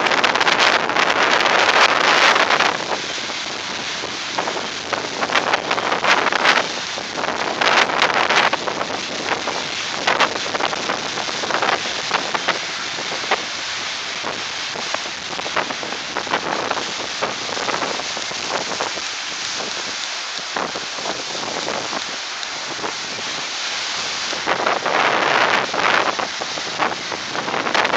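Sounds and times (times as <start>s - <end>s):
surf breaking against seawall: 0.0s - 27.9s
wind buffeting microphone: 0.0s - 27.9s.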